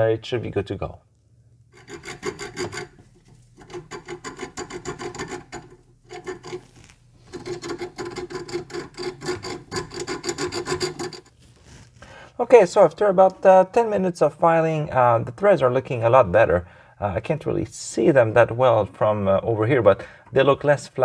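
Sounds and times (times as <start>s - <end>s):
file rasping on metal threads: 1.7s - 3.0s, 3.6s - 11.3s.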